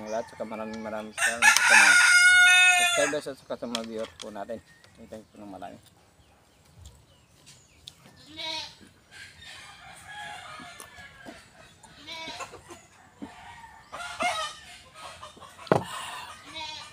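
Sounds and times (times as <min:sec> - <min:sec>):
chickens calling: 0:00.0 - 0:16.9
rooster crowing: 0:00.4 - 0:03.2, 0:09.3 - 0:11.5.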